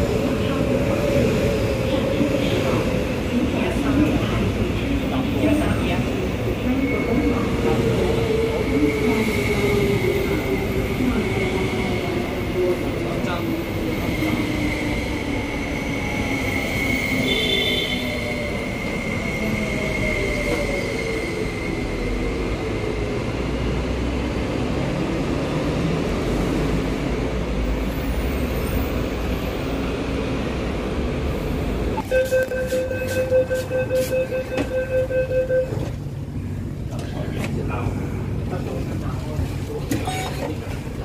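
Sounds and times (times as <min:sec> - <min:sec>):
electronic door warning beeps: 0:32.0 - 0:35.8.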